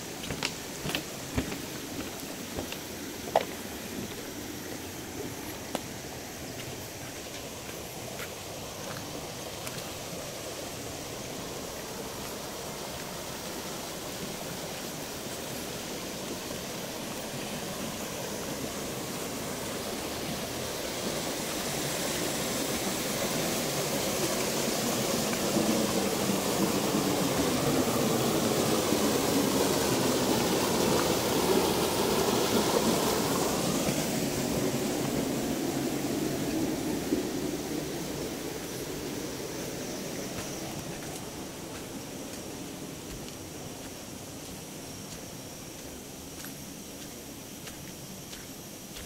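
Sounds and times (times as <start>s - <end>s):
stream splashing over rocks: 5.2s - 43.4s.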